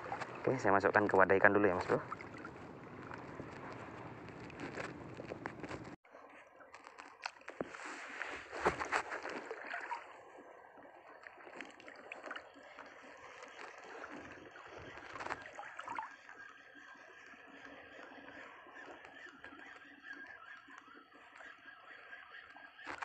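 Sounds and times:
seawater splashing and sloshing: 0:00.0 - 0:06.0, 0:07.8 - 0:16.3.

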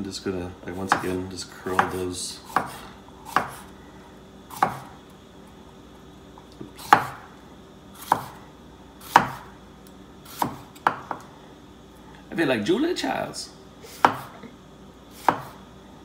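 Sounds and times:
knife chopping on wooden board: 0:00.8 - 0:03.7, 0:04.5 - 0:04.9, 0:06.8 - 0:07.2, 0:08.0 - 0:08.4, 0:09.0 - 0:09.5, 0:10.3 - 0:11.2, 0:14.0 - 0:14.4, 0:15.2 - 0:15.6.

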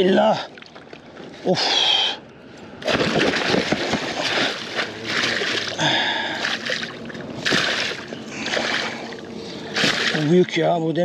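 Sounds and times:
water splashing from thrashing fish: 0:02.8 - 0:10.4.

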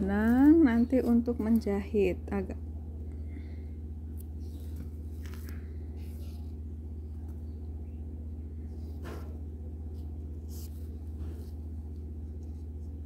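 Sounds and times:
steady low hum: 0:00.0 - 0:13.0
yarn rustling: 0:08.7 - 0:13.0.

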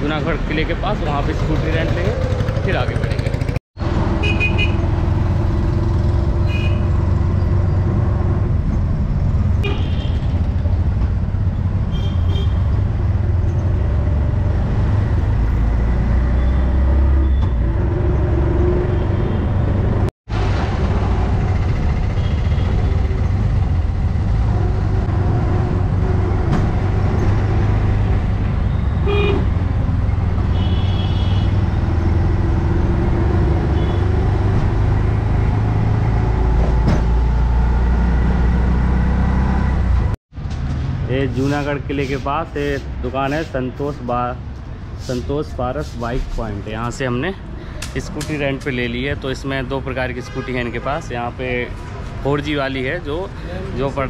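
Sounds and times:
auto-rickshaw engine running: 0:00.0 - 0:11.6, 0:19.8 - 0:37.8
vehicle horns tooting: 0:04.2 - 0:04.8, 0:06.4 - 0:07.0, 0:09.6 - 0:10.3, 0:28.7 - 0:29.5, 0:30.5 - 0:31.6.

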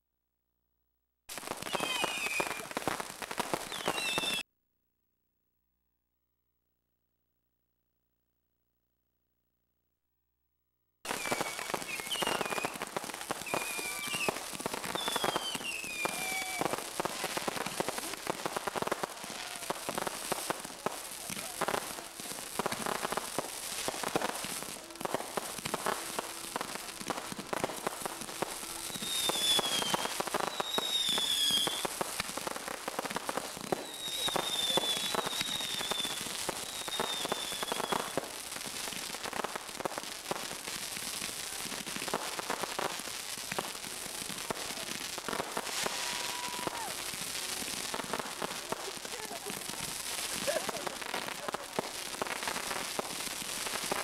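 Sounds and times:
fireworks crackling and popping: 0:01.3 - 0:04.4, 0:11.0 - 0:54.0
firework whistles falling in pitch: 0:01.4 - 0:02.9, 0:03.5 - 0:04.4, 0:11.1 - 0:17.6, 0:25.2 - 0:31.9, 0:33.7 - 0:38.3, 0:45.6 - 0:47.3.

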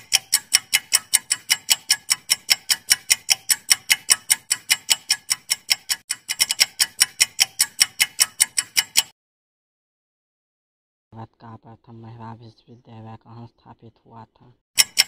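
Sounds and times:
clock ticking quickly: 0:00.0 - 0:09.1, 0:14.8 - 0:15.0.

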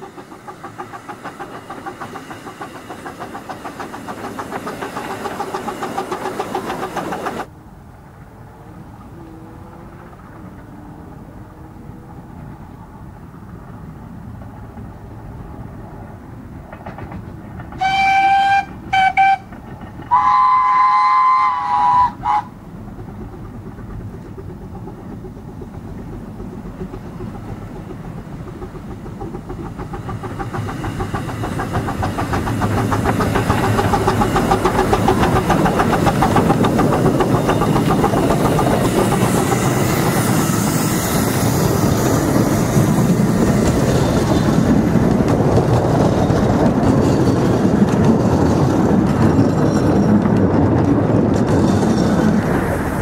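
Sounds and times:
steam engines chuffing: 0:00.0 - 0:07.5, 0:11.1 - 0:53.0
steam locomotive whistle: 0:17.8 - 0:22.6.

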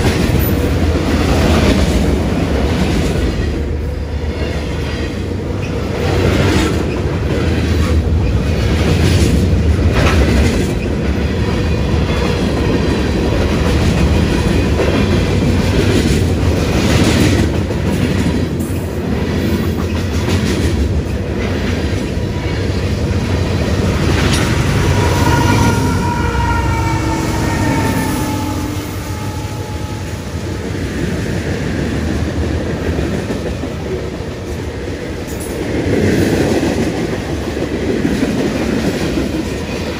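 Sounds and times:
wheels clacking over rail joints: 0:00.0 - 0:26.5
freight train rumbling past: 0:00.0 - 0:39.9
high wheel squeal: 0:24.3 - 0:31.0.

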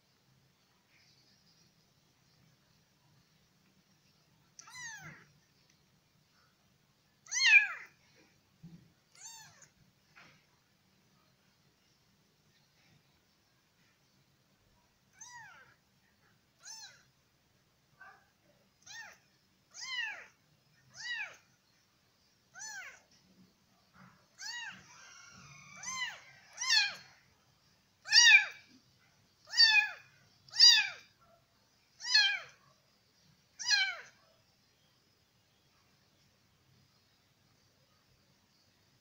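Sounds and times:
kitten meowing: 0:04.6 - 0:05.3, 0:07.2 - 0:07.9, 0:09.1 - 0:09.7, 0:15.2 - 0:15.7, 0:16.6 - 0:17.0, 0:18.8 - 0:20.3, 0:20.9 - 0:21.4, 0:22.5 - 0:23.0, 0:24.4 - 0:24.9, 0:25.8 - 0:27.1, 0:28.0 - 0:28.6, 0:29.4 - 0:31.1, 0:32.0 - 0:32.6, 0:33.6 - 0:34.1.

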